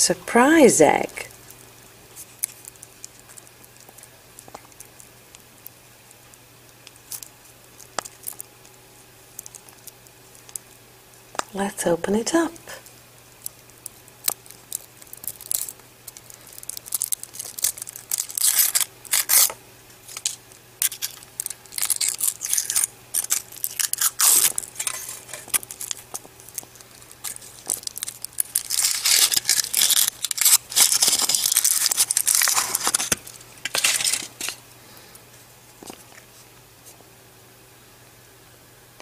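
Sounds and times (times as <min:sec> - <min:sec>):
foil wrapper crinkling and tearing: 0:01.4 - 0:10.8, 0:13.4 - 0:34.6.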